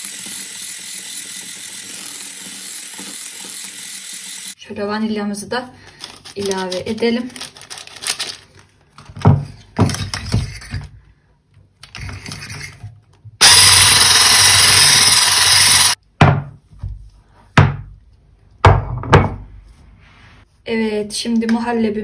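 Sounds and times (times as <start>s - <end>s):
electric stick blender running: 0.0s - 4.6s, 13.4s - 16.0s.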